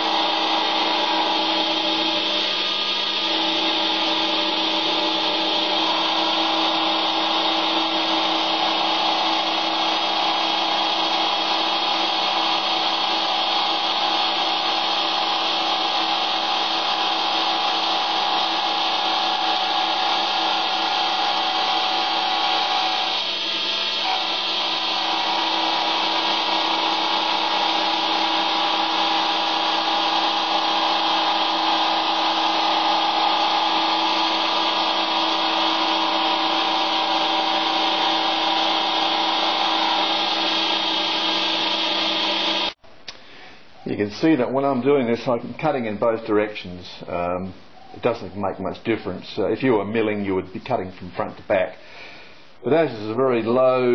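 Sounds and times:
disc grinding steel: 0.0s - 42.8s
lathe machine whine: 0.0s - 42.8s.

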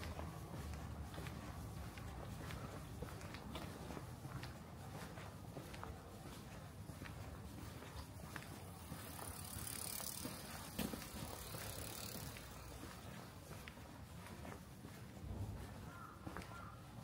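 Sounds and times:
bicycle tyre hiss: 8.8s - 12.8s.

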